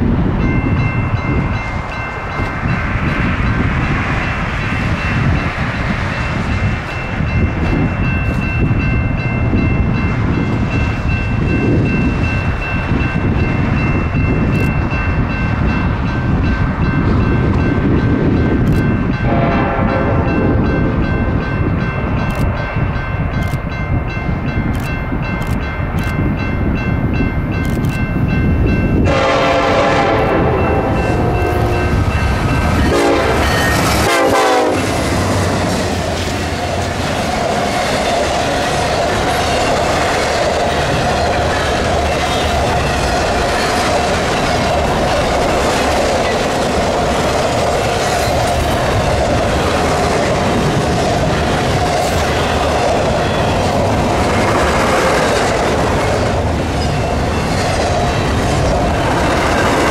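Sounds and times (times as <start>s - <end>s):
train wheels rumbling on rails: 0.0s - 59.9s
high ringing tones: 4.8s - 34.8s
train horn: 19.2s - 20.6s, 29.0s - 32.2s, 32.8s - 35.4s.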